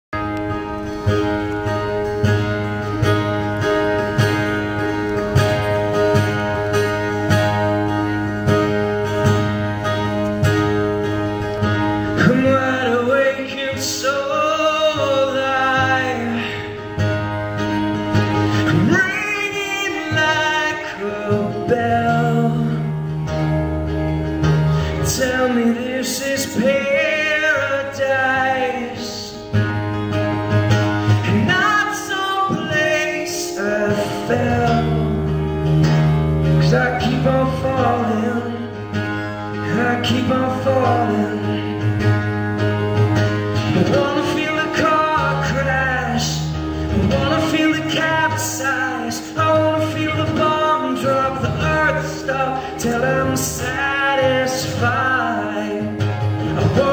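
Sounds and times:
acoustic guitar strumming: 0.1s - 56.9s
man singing: 11.7s - 17.5s, 18.1s - 23.6s, 24.8s - 29.6s, 31.0s - 42.1s, 43.4s - 56.9s.

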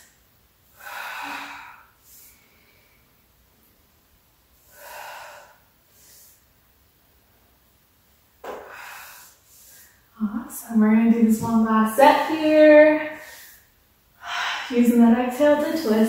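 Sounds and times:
woman breathing heavily: 0.7s - 3.4s, 4.6s - 6.5s, 8.4s - 10.2s, 12.2s - 14.9s.

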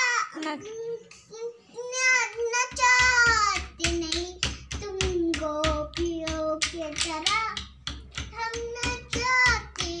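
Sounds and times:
child singing: 0.0s - 10.0s
quick steady taps: 2.1s - 10.0s.

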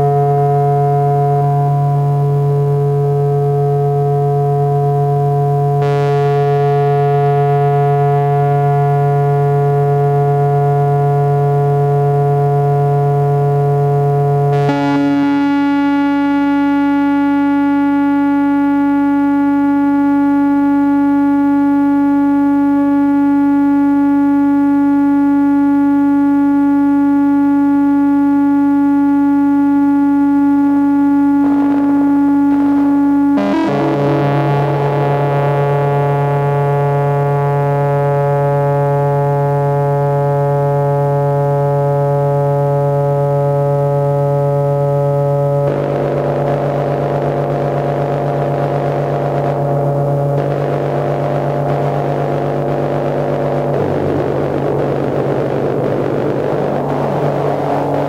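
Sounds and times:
synthesizer drone: 0.0s - 8.6s, 14.5s - 21.9s, 31.3s - 37.3s, 45.6s - 58.0s.

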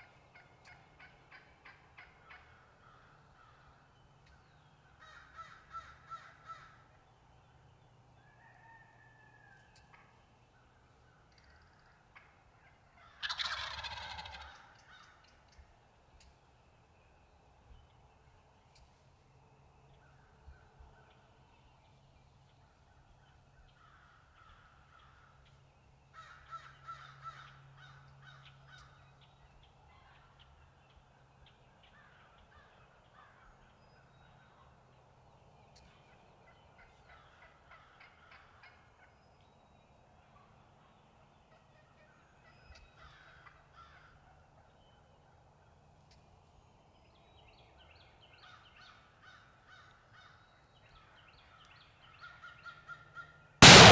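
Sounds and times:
turkeys gobbling: 0.3s - 2.5s, 11.3s - 15.3s, 36.5s - 38.8s.

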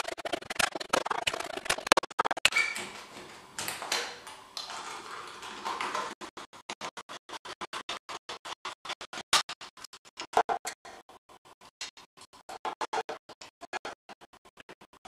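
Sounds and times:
scratching and scraping of craft work: 0.0s - 15.0s.

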